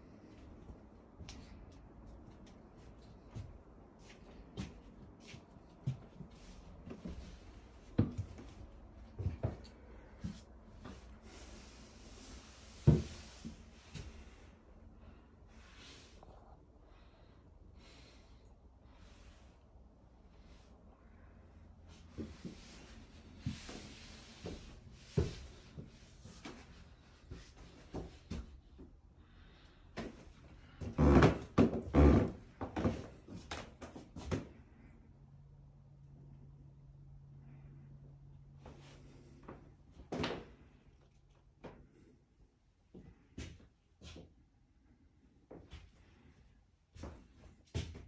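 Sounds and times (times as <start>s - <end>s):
footsteps on wooden stairs: 3.2s - 11.1s.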